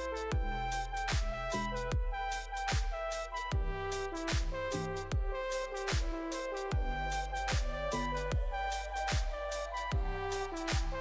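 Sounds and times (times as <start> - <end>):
electronic music: 0.0 - 11.0
deep kick drum: 0.3 - 11.0
sustained synth notes: 4.7 - 11.0.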